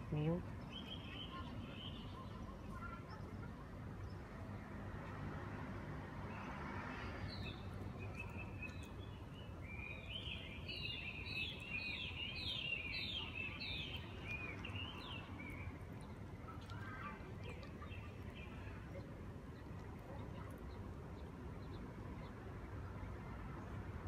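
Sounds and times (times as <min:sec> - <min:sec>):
bird chirping: 0:07.3 - 0:18.7.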